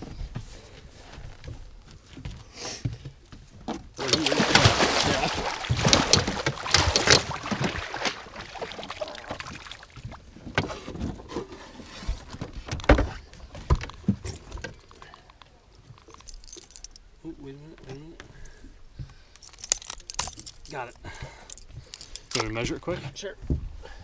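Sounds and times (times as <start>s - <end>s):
fish splashing in net: 4.0s - 10.0s
water sloshing: 4.0s - 11.0s.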